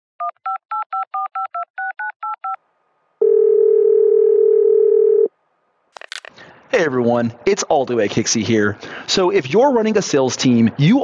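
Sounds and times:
telephone ringing tone: 3.2 - 5.3.

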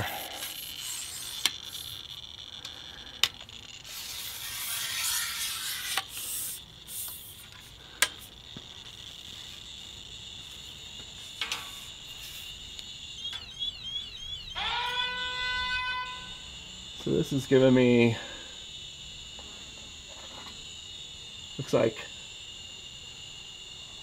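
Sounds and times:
sharp clicks: 12.7 - 15.0.

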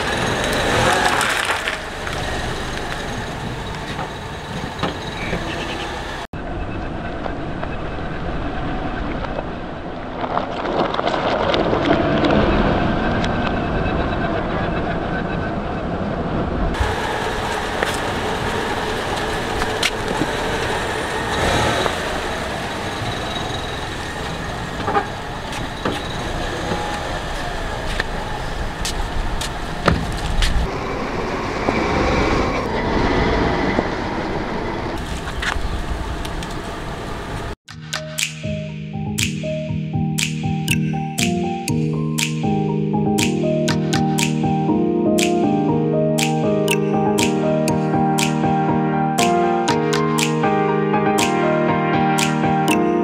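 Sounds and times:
vehicle rumble: 0.0 - 37.6
sharp clicks: 37.7 - 39.6, 40.2 - 42.4, 43.2 - 44.4, 45.2 - 45.5, 46.2 - 48.4, 49.2 - 50.4, 51.2 - 51.4, 52.2 - 52.9.

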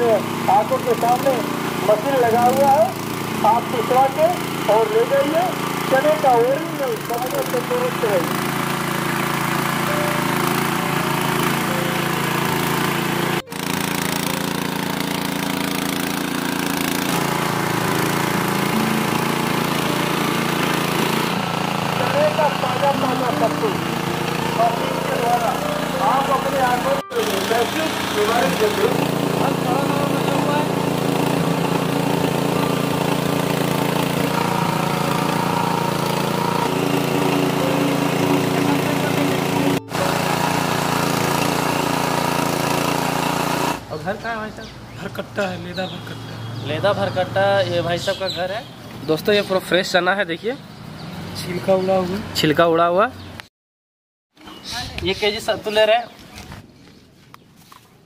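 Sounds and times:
flour mill grinding: 0.0 - 43.8
motorcycle engine running: 0.0 - 43.9.

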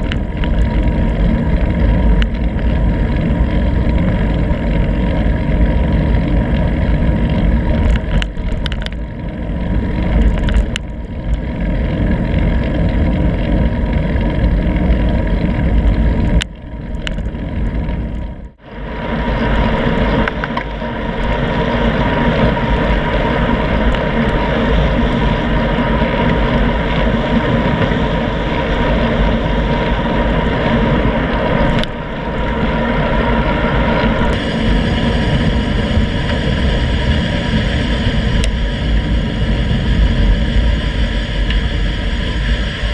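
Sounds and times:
road and tyre rumble: 0.0 - 42.9
wind rushing over microphone: 0.0 - 42.9.

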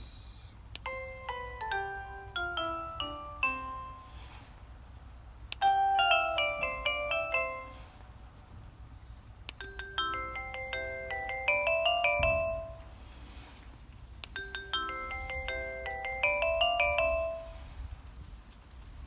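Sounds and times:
doorbell chiming melody: 0.8 - 4.4, 5.6 - 8.1, 9.6 - 13.0, 14.4 - 17.8.

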